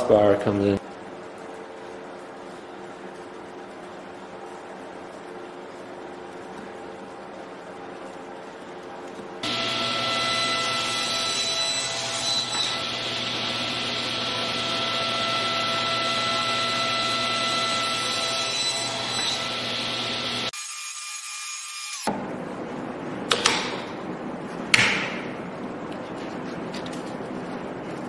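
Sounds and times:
table saw cutting wood: 9.4s - 22.1s.

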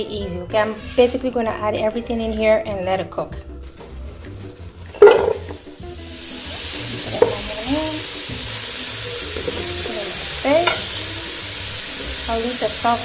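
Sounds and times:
sizzling hiss: 3.6s - 13.0s
squash clattering into a pot: 4.9s - 5.6s, 7.2s - 7.5s.

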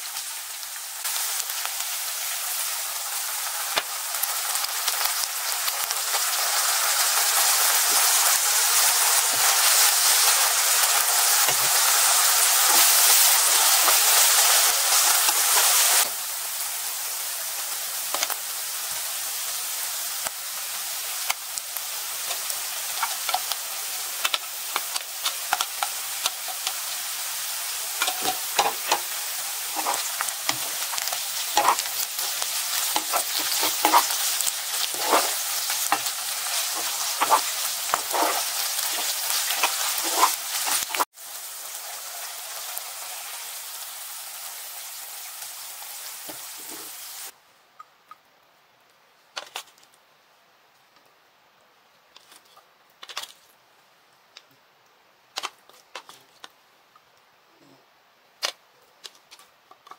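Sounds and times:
food sizzling in hot oil: 0.0s - 47.4s
utensils scraping and tapping pan: 28.0s - 29.1s, 29.7s - 34.2s, 34.8s - 41.0s.

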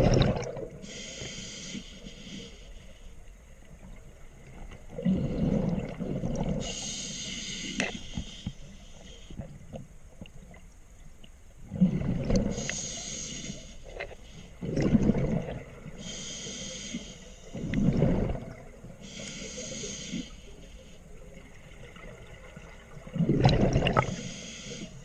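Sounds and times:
exhaled air bubbling: 0.0s - 1.0s, 4.9s - 6.9s, 11.6s - 13.2s, 14.6s - 16.2s, 17.5s - 19.2s, 21.3s - 24.5s
regulator inhale hiss: 0.8s - 3.3s, 6.6s - 9.6s, 12.4s - 14.6s, 15.9s - 17.8s, 19.0s - 21.2s, 24.0s - 25.0s.

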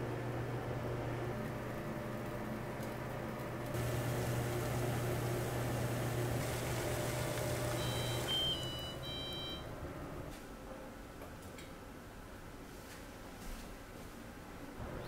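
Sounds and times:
cooktop humming: 0.1s - 10.2s
water boiling in a pan: 3.8s - 8.7s
short electronic beep: 7.8s - 9.7s.

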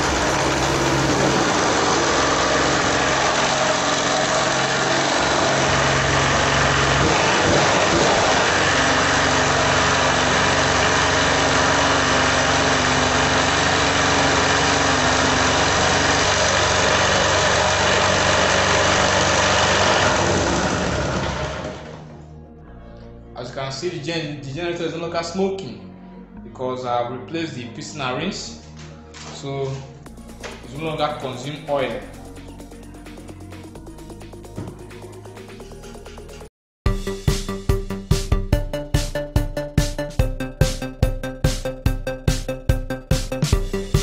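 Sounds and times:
generator engine running: 0.0s - 22.2s, 37.0s - 44.0s.

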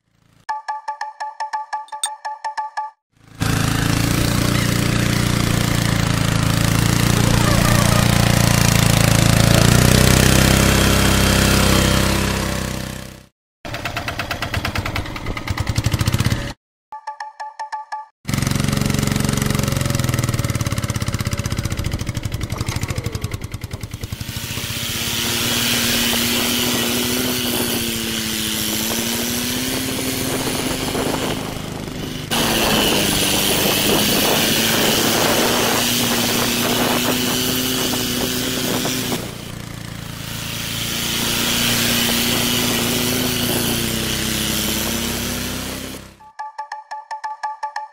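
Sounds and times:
small electric gear motor whining: 22.3s - 46.1s.

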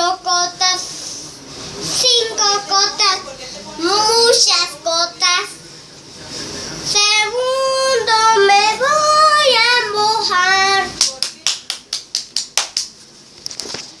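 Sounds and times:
boy singing: 1.9s - 5.6s, 6.9s - 11.0s
hand clapping: 11.0s - 13.0s.

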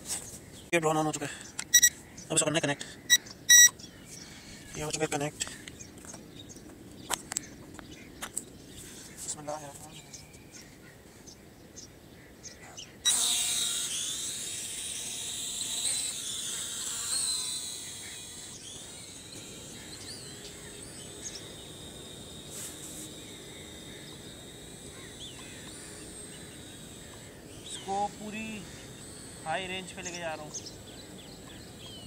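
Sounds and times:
quadcopter motors buzzing: 1.6s - 2.0s, 3.0s - 6.3s, 13.0s - 32.0s.

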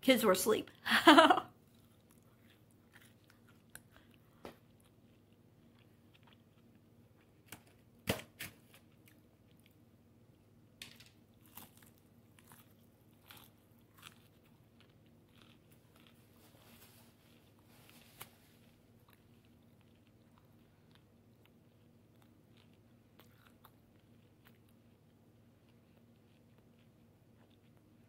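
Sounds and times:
chewing and biting chicken: 1.6s - 7.4s, 11.4s - 16.5s, 18.5s - 28.0s
soft crunches: 11.4s - 20.5s.

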